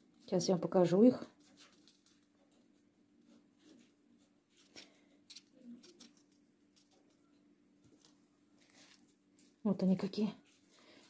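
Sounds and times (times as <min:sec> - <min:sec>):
seed packet rustling: 0:07.9 - 0:09.6.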